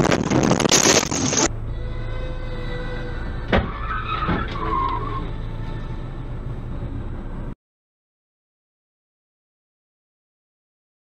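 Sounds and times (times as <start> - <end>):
engine and road hum: 0.0 - 7.6
tyres screeching: 0.4 - 6.0.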